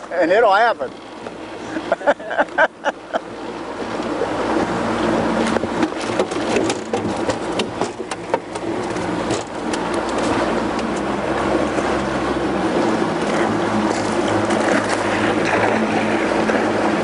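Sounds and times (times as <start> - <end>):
outboard motor running: 0.0 - 17.0
water rushing: 0.0 - 17.0
fish splashing and knocking: 5.4 - 11.1, 12.9 - 17.0.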